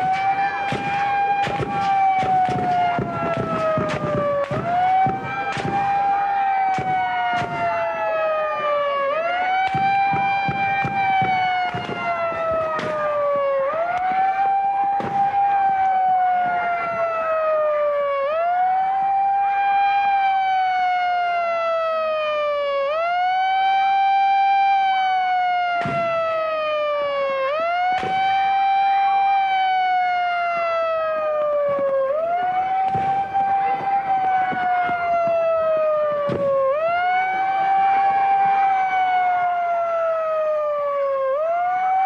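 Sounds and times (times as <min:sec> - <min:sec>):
sharp cracks: 0:00.0 - 0:08.0, 0:09.5 - 0:14.2, 0:14.8 - 0:16.0, 0:25.7 - 0:28.6, 0:31.3 - 0:37.6
siren wailing: 0:00.0 - 0:42.0.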